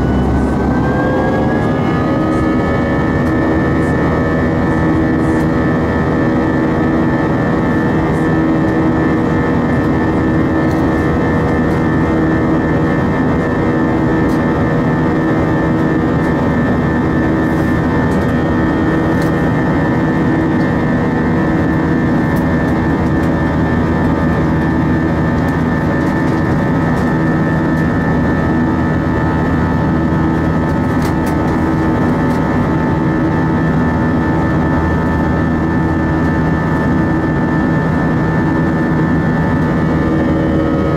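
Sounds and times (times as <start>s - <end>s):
jet engines roaring in cabin: 0.0s - 40.9s.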